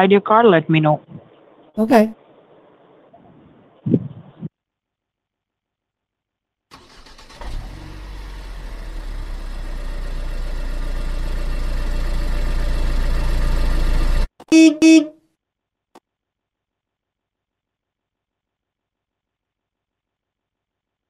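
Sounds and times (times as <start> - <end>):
car engine starting and running: 6.7 - 14.4.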